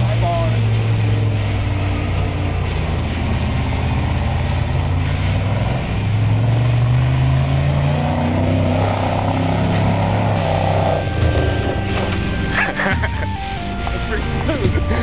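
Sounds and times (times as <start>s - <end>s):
buggy engine running hard: 0.0s - 15.0s.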